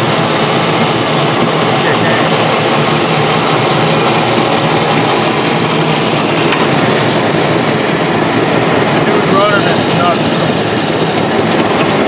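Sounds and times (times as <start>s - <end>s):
snowblower churning snow: 0.0s - 12.0s
tractor engine running: 0.0s - 12.0s.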